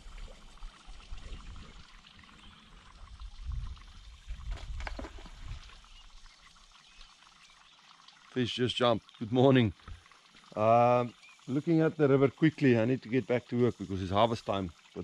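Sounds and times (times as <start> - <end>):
water trickling and lapping: 0.0 - 15.0
wind rumble on microphone: 3.0 - 5.7
sharp splashes: 4.4 - 5.8.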